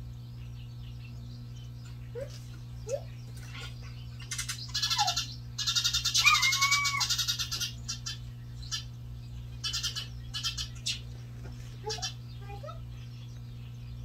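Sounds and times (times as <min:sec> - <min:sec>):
sparrows chattering: 0:00.0 - 0:14.0
whistled bird call: 0:04.8 - 0:07.6.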